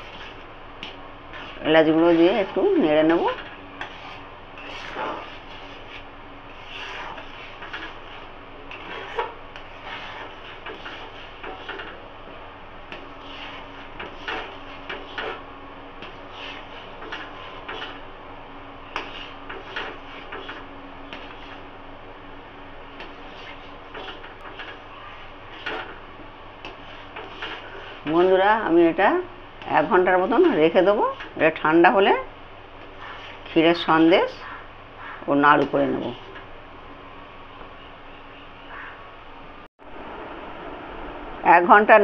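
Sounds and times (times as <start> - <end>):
spatula scraping metal pan: 0.0 - 12.0, 12.9 - 18.1, 18.9 - 21.6, 23.0 - 26.0, 26.6 - 28.7, 32.8 - 34.5.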